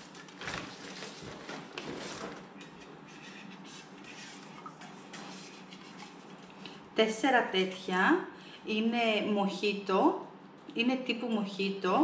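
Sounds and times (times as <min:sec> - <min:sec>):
packaging rustling: 0:00.0 - 0:02.6.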